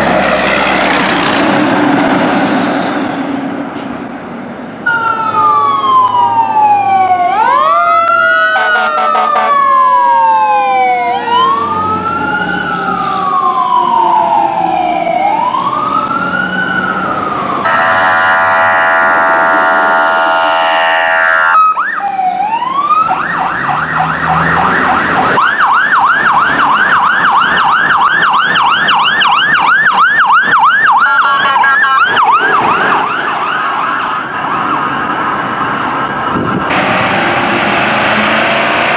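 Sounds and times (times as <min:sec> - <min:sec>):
siren wailing: 0:04.8 - 0:36.7
siren fast yelp: 0:04.9 - 0:15.7, 0:17.6 - 0:34.5
air horn blast: 0:08.6 - 0:09.6, 0:17.6 - 0:21.7, 0:31.0 - 0:32.1.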